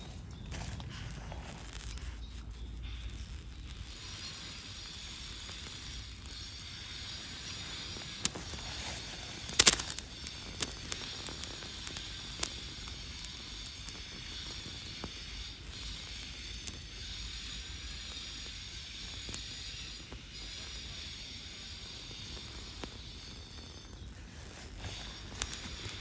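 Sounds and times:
sharp pops: 0.0s - 17.0s
burning crackles and snaps: 0.0s - 26.0s.

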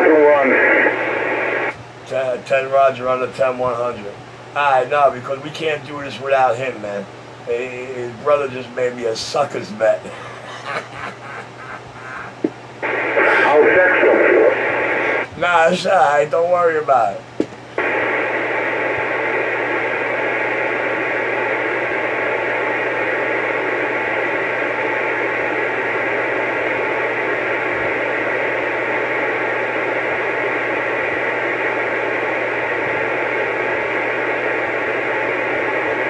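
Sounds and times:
faint low hum: 0.0s - 36.0s
radio static hiss: 0.0s - 36.0s.

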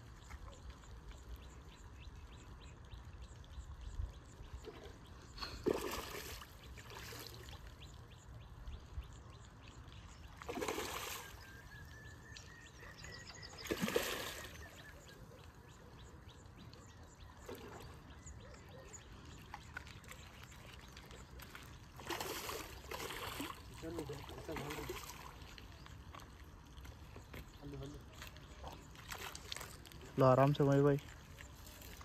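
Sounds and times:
fish splashing: 4.6s - 7.7s, 10.3s - 11.5s, 13.5s - 14.9s, 19.5s - 27.2s, 28.1s - 30.2s.

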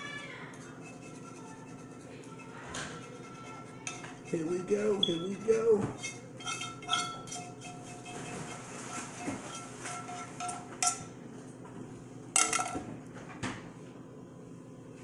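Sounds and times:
utensil scraping frying pan: 0.5s - 11.1s.

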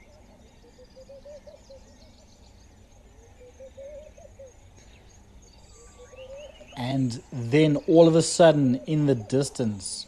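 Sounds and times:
low warbling bird call: 0.0s - 5.0s
birds calling: 0.0s - 10.0s.

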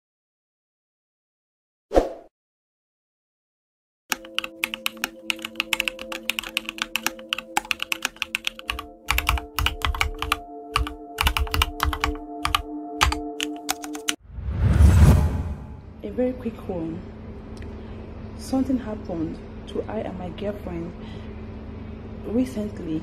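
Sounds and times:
keyboard typing clicks: 4.1s - 14.2s
faint steady hum: 15.9s - 23.0s.

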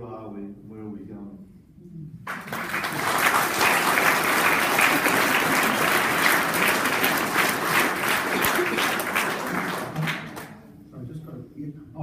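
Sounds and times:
audience applause: 2.3s - 10.6s.

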